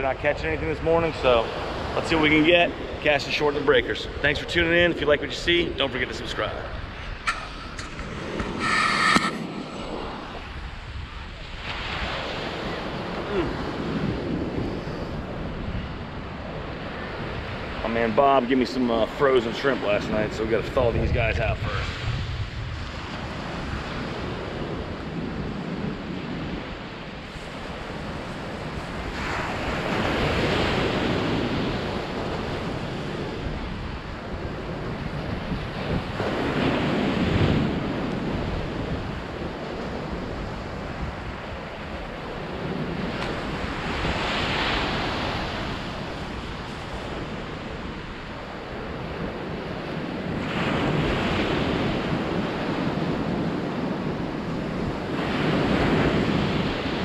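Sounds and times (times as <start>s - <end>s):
wind buffeting microphone: 4.1s - 17.8s, 19.9s - 57.0s
surf waves crashing: 5.3s - 15.4s, 27.0s - 34.2s, 35.7s - 57.0s.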